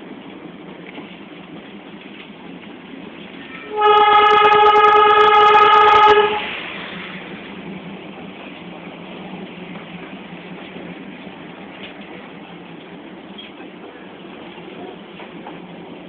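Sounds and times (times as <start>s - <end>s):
train running noise: 0.0s - 16.0s
train whistle: 3.5s - 6.6s.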